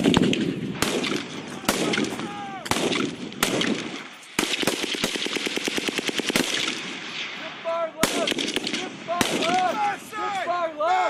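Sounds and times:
single gunshots: 0:00.0 - 0:09.8
person shouting: 0:01.6 - 0:02.7, 0:09.4 - 0:11.0.

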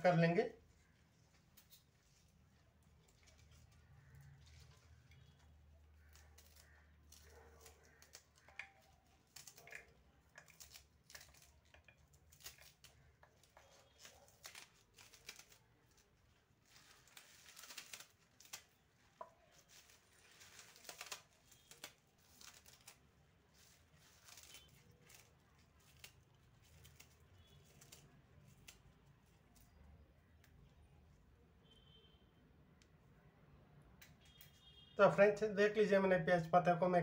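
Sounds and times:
knife snipping onion stalks: 0:02.9 - 0:29.8.

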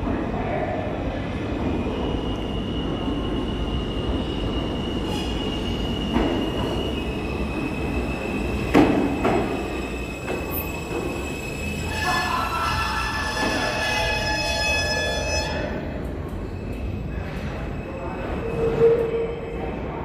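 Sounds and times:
subway train rumbling: 0:00.0 - 0:20.0
high wheel squeal: 0:02.1 - 0:17.1.

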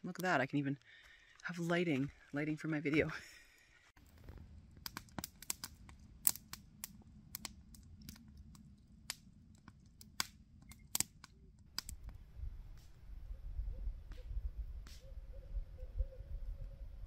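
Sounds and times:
campfire crackling: 0:00.8 - 0:13.2.

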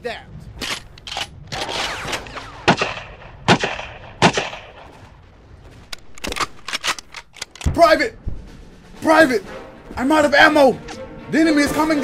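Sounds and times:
rifle shots: 0:00.6 - 0:05.1
burst of gunfire: 0:00.6 - 0:05.2.

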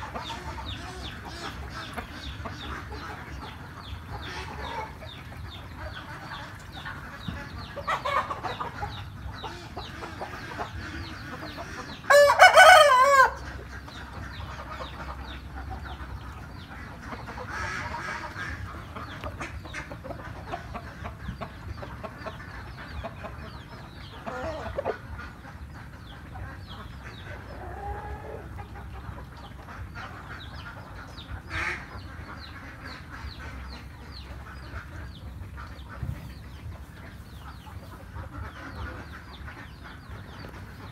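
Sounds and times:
poultry clucking: 0:00.0 - 0:40.9
rooster crowing: 0:12.1 - 0:13.4.

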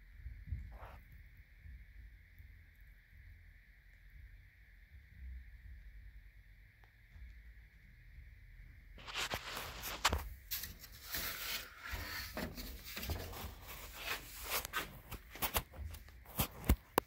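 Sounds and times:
handling noise rubbing and rustling: 0:09.0 - 0:17.0.

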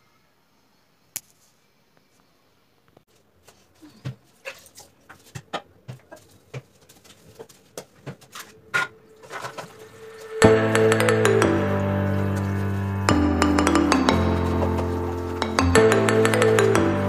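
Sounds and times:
plastic bottles and brush clicking: 0:04.0 - 0:10.4
loud music: 0:10.2 - 0:17.0.

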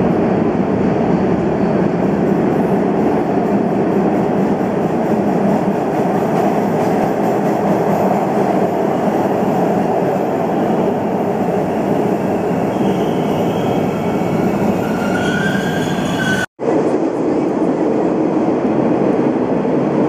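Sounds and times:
subway train wheels rumbling: 0:00.0 - 0:20.0
high brake squeal: 0:12.7 - 0:16.5.

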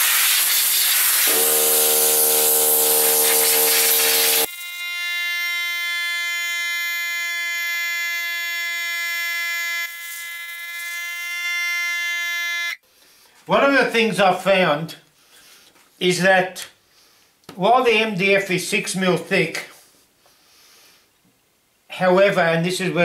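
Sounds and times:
air blow gun hissing: 0:00.0 - 0:04.5
high-pitched buzz: 0:00.0 - 0:12.8
machine hum: 0:01.3 - 0:04.5.

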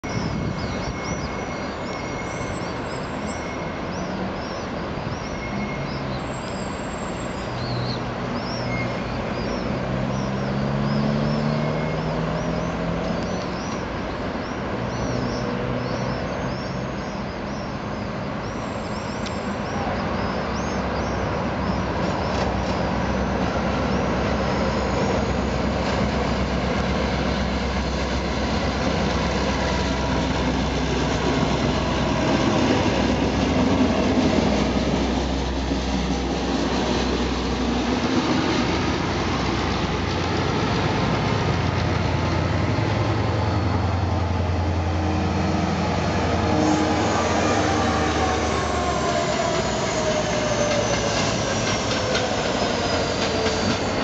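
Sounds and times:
small birds chirping: 0:00.0 - 0:25.5
diesel locomotive engine drone: 0:00.0 - 0:54.0.

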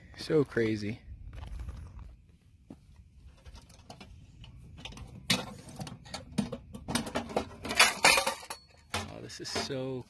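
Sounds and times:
metal ammo can clicks and clanks: 0:04.8 - 0:09.9.

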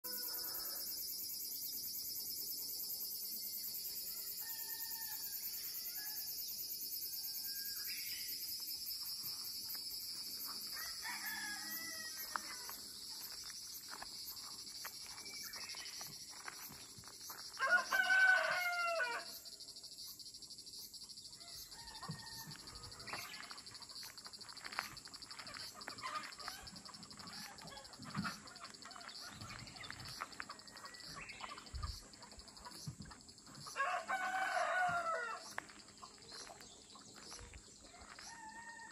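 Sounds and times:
insects droning: 0:00.0 - 0:38.9
rooster crowing: 0:04.2 - 0:06.3, 0:10.7 - 0:12.8, 0:17.6 - 0:19.3, 0:21.7 - 0:23.1, 0:33.8 - 0:35.4, 0:38.0 - 0:38.9.

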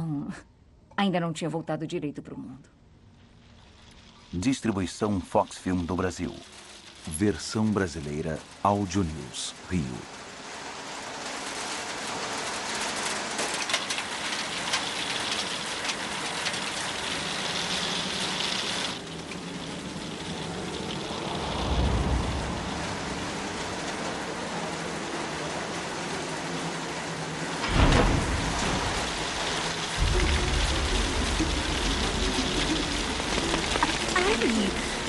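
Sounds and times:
heavy hail pelting down: 0:03.1 - 0:35.0
low rumble: 0:20.4 - 0:24.0, 0:27.7 - 0:35.0.

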